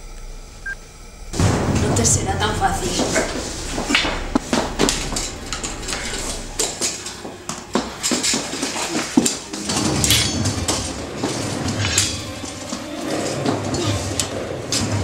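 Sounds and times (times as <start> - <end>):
metal stand clattering and banging: 3.9 - 15.0.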